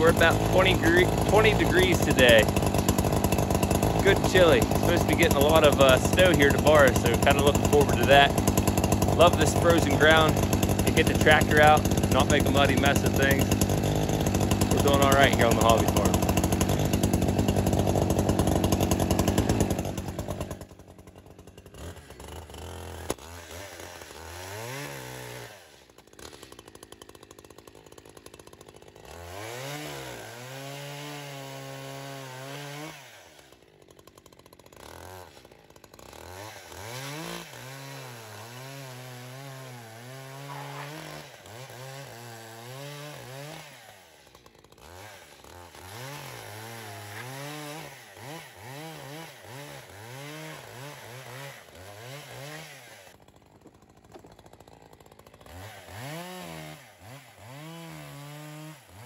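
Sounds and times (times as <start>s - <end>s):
chainsaw revving and idling: 0.0s - 59.0s.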